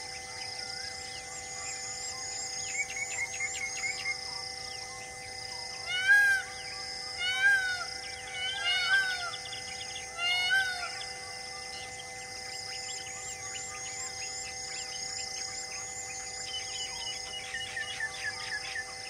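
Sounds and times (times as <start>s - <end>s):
steady held drone: 0.0s - 19.0s.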